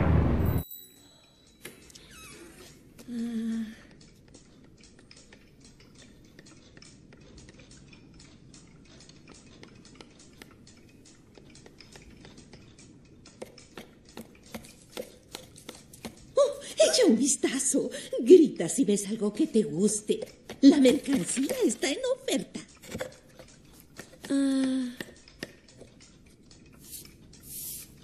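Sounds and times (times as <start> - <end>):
knife carving wood clicks: 3.8 - 16.4, 19.9 - 28.0.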